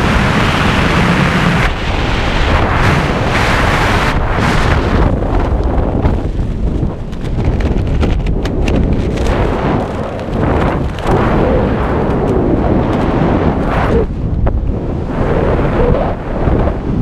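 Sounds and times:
wind buffeting microphone: 0:00.0 - 0:17.0.

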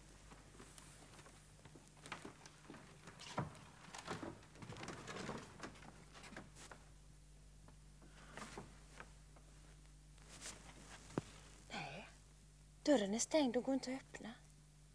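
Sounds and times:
footsteps on wooden stage: 0:00.2 - 0:06.8.

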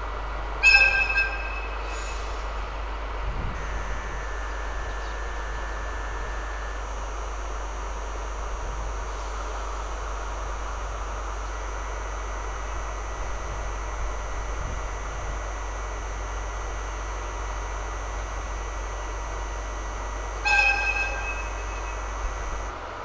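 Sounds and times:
distant train horn blast: 0:00.5 - 0:02.6, 0:19.6 - 0:22.7.

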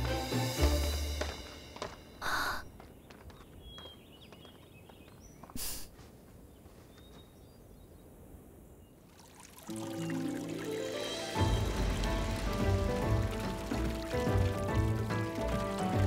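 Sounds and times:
person sniffing: 0:02.2 - 0:02.7, 0:05.6 - 0:06.0
faint bird chirps: 0:02.2 - 0:09.1.

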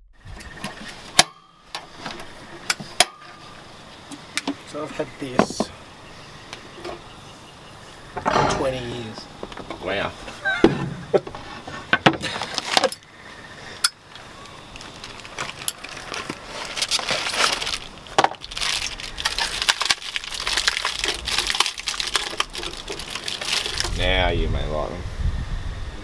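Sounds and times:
packaging crinkling: 0:14.4 - 0:24.0.

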